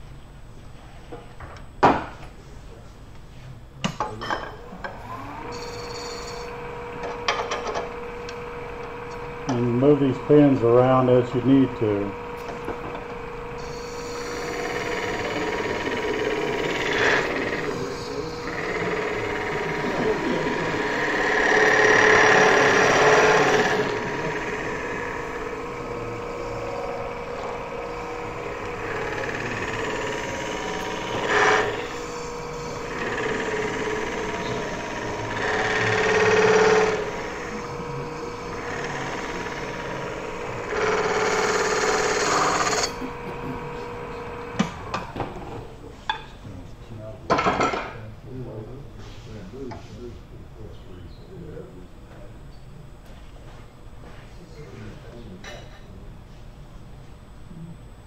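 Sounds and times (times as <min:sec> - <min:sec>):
lathe humming: 0:04.6 - 0:46.0
tool scraping spinning metal: 0:05.4 - 0:45.2.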